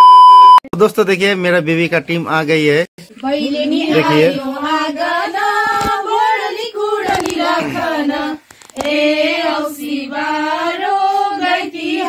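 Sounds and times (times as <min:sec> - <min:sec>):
women singing together: 0:03.1 - 0:12.0.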